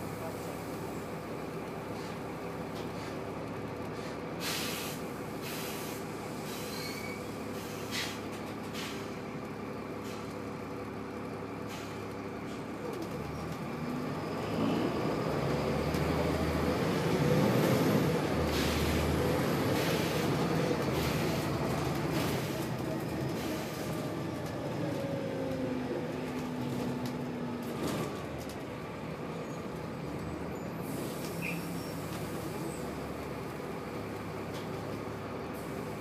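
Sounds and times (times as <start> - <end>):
bus diesel engine: 0.0 - 36.0
compressed air hisses: 4.4 - 7.0.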